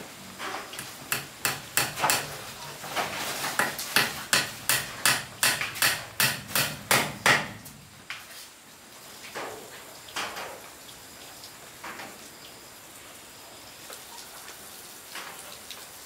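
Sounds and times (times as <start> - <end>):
hammer blows on wood: 3.6 - 7.8.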